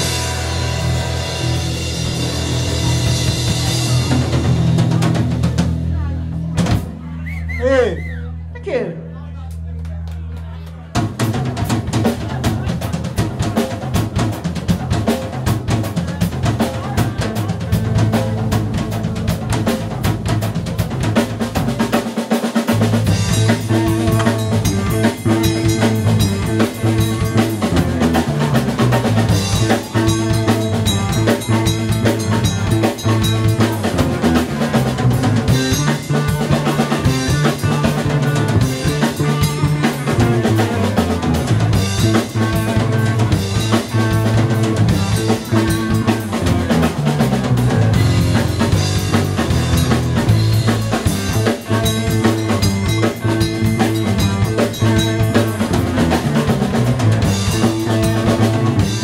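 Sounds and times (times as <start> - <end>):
drum kit: 0.0 - 8.8, 10.9 - 59.0
live band playing: 0.0 - 9.2, 11.0 - 59.0.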